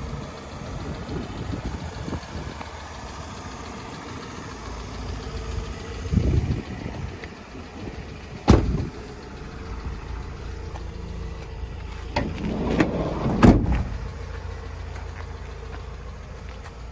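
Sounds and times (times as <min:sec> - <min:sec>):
low steady rumble: 0:00.0 - 0:16.9
sliding door rolling and slamming: 0:12.2 - 0:14.0.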